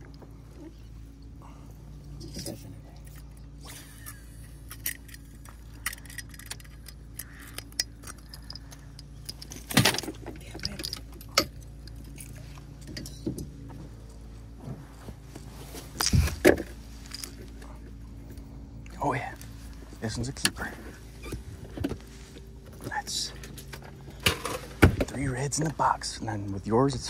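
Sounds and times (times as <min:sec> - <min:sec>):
steady low hum: 0:00.0 - 0:27.0
metallic clinking and rattling: 0:04.0 - 0:13.5, 0:15.9 - 0:17.8.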